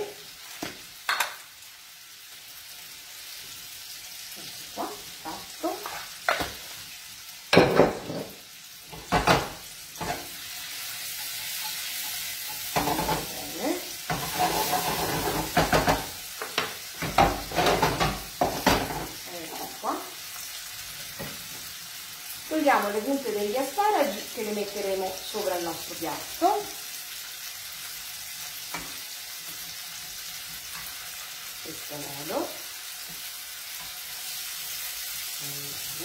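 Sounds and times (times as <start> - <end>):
vegetables sizzling in a frying pan: 0.0 - 36.0
pan clattering on burner: 0.6 - 1.4, 7.5 - 10.4, 11.1 - 19.2
wooden spoon scraping a pan: 9.0 - 19.2.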